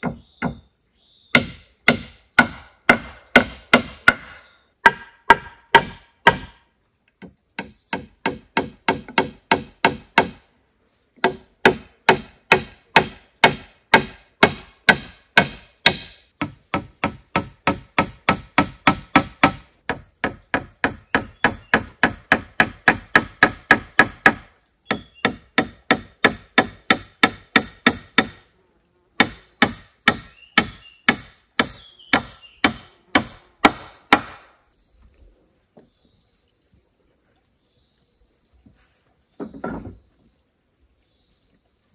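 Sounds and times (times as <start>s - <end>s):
hand tool striking wood: 0.0s - 0.6s, 1.3s - 6.6s, 7.2s - 10.4s, 11.2s - 28.4s, 29.2s - 34.6s.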